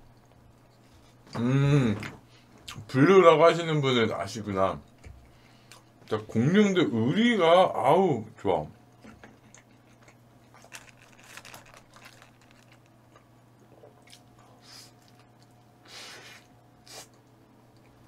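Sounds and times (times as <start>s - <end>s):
person chewing food: 9.0s - 15.6s.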